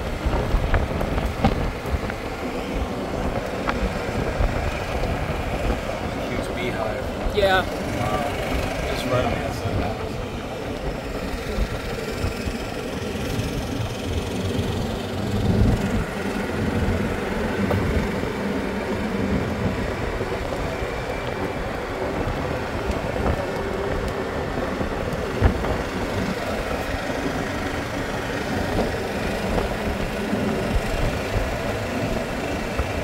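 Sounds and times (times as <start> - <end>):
golf cart motor and road noise: 0.0 - 33.0.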